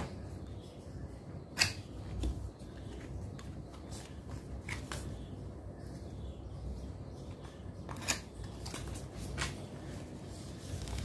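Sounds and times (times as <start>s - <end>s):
cardboard rustling and sliding: 9.0s - 11.0s.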